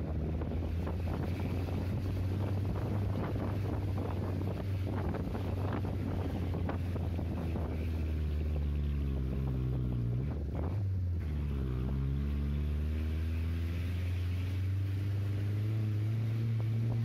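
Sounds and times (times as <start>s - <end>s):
vehicle engine running: 0.0s - 17.0s
wind noise: 0.0s - 17.0s.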